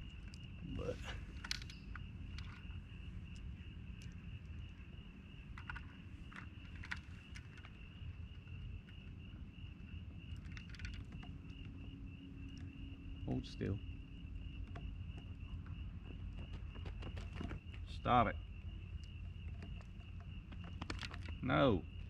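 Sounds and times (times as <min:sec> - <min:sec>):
crickets chirring: 0:00.0 - 0:22.0
handling clicks and knocks: 0:01.3 - 0:03.4, 0:05.5 - 0:07.8, 0:19.0 - 0:22.0.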